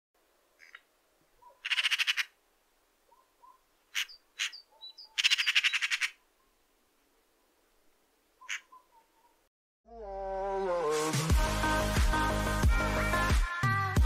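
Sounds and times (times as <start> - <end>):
magpie chattering: 0.6 - 2.4, 3.4 - 6.2, 8.4 - 9.0.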